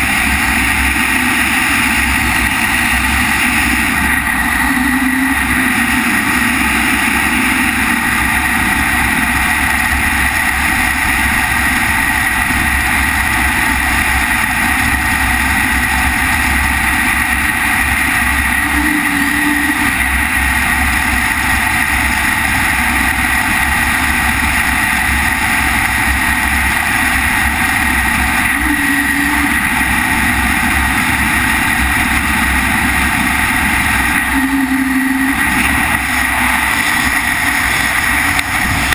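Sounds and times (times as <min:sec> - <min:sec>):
low blips: 0:00.0 - 0:09.4, 0:18.4 - 0:20.9, 0:28.2 - 0:38.9
wind rushing over microphone: 0:00.0 - 0:38.9.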